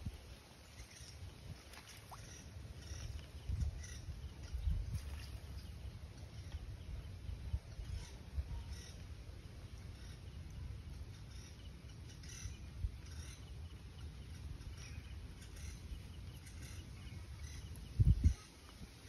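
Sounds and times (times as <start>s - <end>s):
faint bird chirps: 0.0s - 19.0s.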